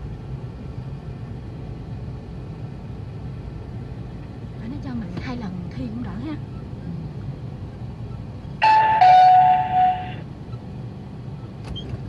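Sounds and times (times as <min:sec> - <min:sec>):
car running hum: 0:00.0 - 0:12.0
two-note electronic chime: 0:08.6 - 0:10.2.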